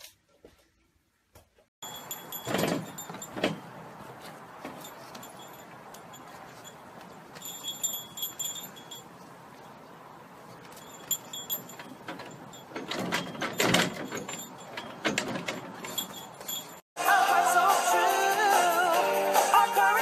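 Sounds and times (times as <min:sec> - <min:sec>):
light metallic jingling: 0:01.8 - 0:16.9.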